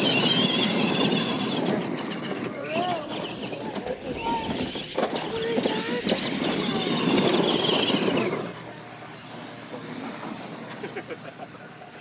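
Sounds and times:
toy truck motor whine: 0.0s - 11.1s.

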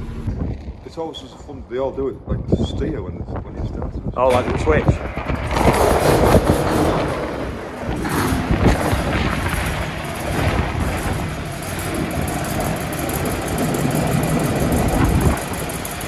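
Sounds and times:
tractor diesel engine idling: 0.0s - 0.3s.

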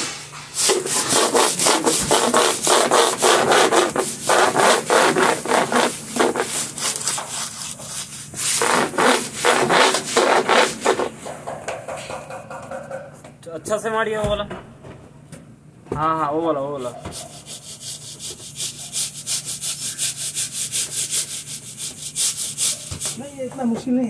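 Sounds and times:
brush scrubbing metal floor: 0.0s - 12.7s, 16.8s - 23.8s.

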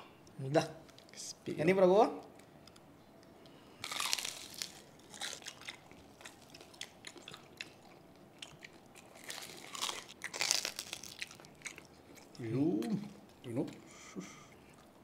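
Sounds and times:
crunching and chewing: 2.2s - 15.0s.

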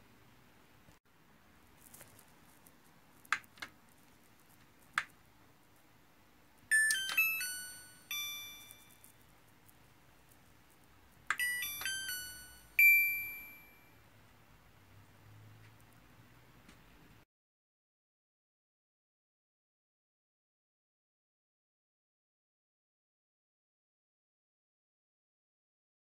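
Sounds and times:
electronic chime melodies: 6.7s - 9.1s, 11.3s - 14.0s.

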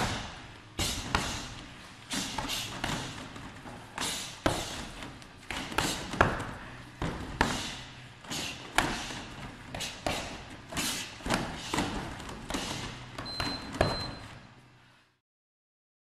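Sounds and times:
thuds on punching bag: 0.0s - 1.6s, 2.2s - 7.8s, 8.6s - 14.2s.

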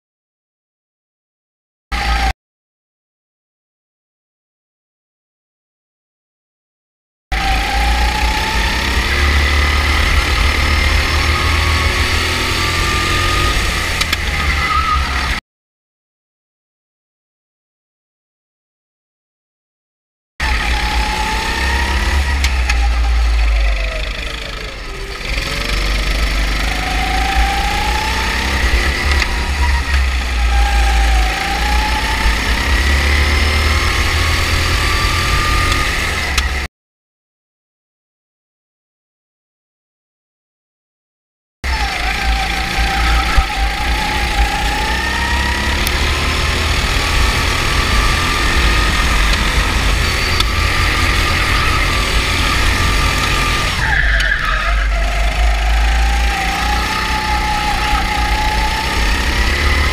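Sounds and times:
go-kart engine rumbling: 7.3s - 15.4s, 20.4s - 36.7s, 41.6s - 59.9s.

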